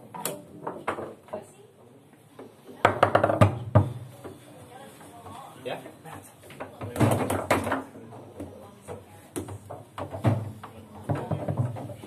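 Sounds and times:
foosball ball knocking: 2.8s - 4.1s.

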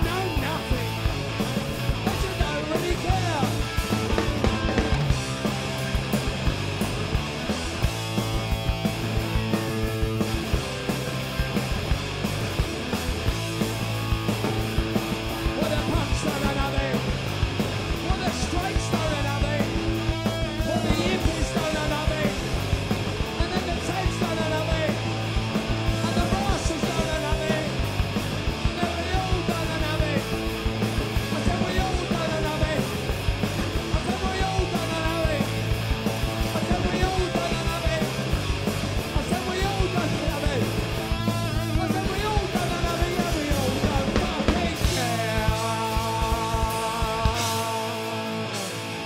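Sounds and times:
punk rock band playing live: 0.0s - 49.0s
sung and shouted vocals: 41.6s - 48.4s.

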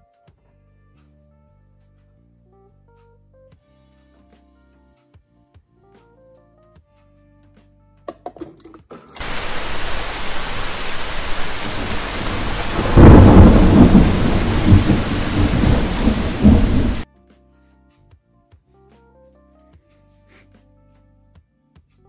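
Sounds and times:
heavy rain downpour: 9.2s - 17.0s
thunder rumbling: 9.2s - 17.0s.

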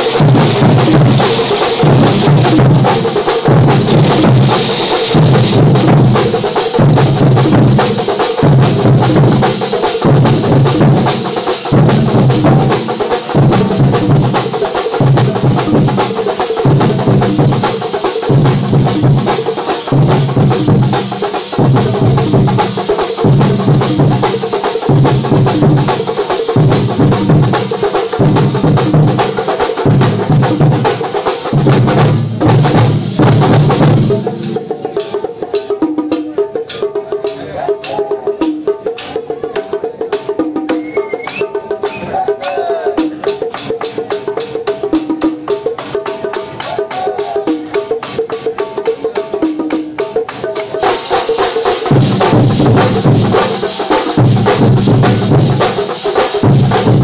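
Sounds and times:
deep drum beat: 0.0s - 36.2s, 51.8s - 57.0s
drum band playing: 0.0s - 57.0s.

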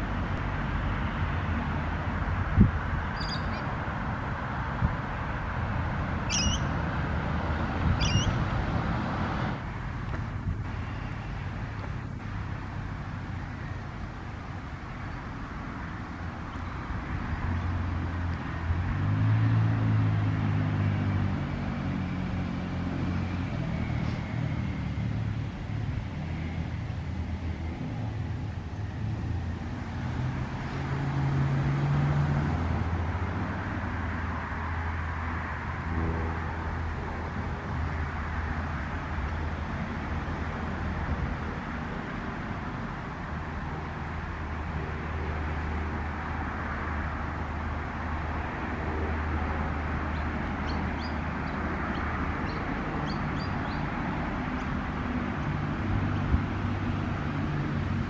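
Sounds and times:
wind on microphone: 1.6s - 10.8s.

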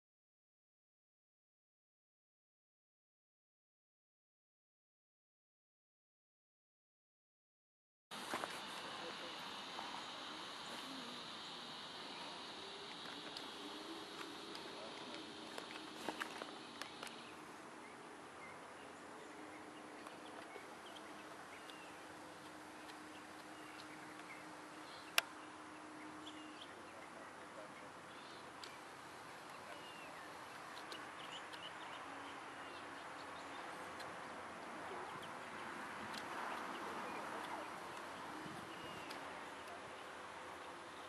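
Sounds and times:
steady hiss: 8.1s - 41.0s
faint low hum: 8.2s - 41.0s
bird chirps: 10.0s - 34.2s, 36.5s - 41.0s.

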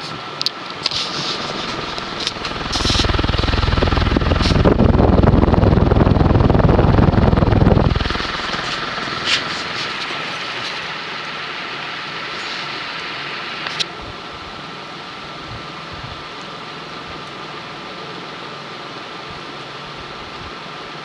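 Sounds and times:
ceiling fan motor hum: 0.0s - 21.0s
air buffeting microphone: 0.9s - 11.0s.

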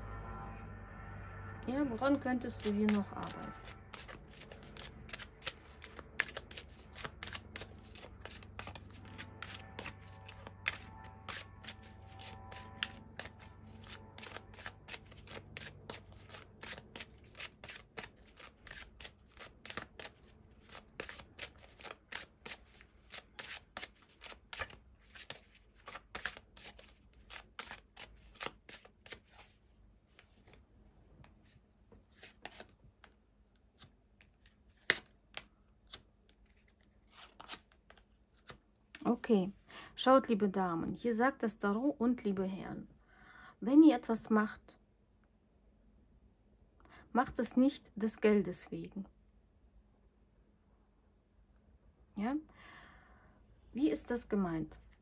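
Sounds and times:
cards shuffling: 2.5s - 30.6s, 31.4s - 33.2s, 33.8s - 38.6s.

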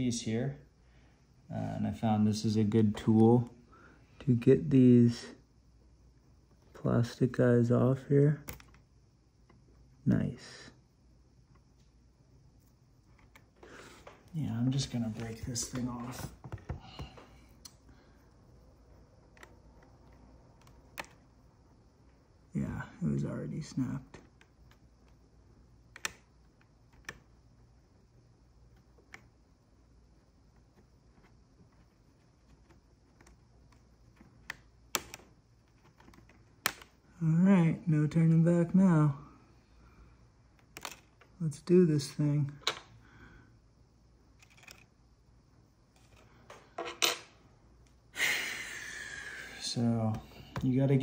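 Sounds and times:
small plastic clicks: 25.9s - 27.3s, 32.6s - 37.0s, 40.5s - 41.4s, 44.4s - 44.9s
plastic clips snapping: 36.0s - 36.9s.

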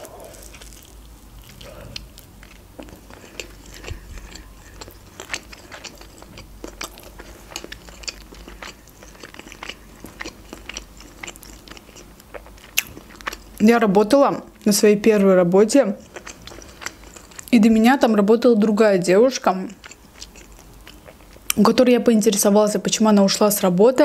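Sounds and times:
mouth chewing with wet clicks: 0.0s - 13.6s, 15.9s - 17.6s, 19.5s - 21.7s.

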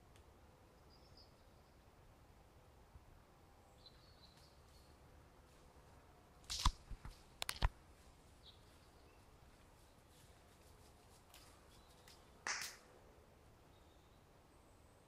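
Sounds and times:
faint bird chirps: 0.7s - 1.9s, 3.6s - 5.0s
camera handling knocks and clicks: 6.5s - 7.7s.

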